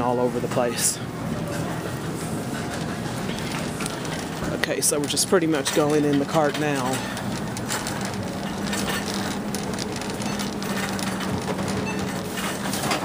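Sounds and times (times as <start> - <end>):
shopping cart rolling and rattling: 0.5 - 13.0.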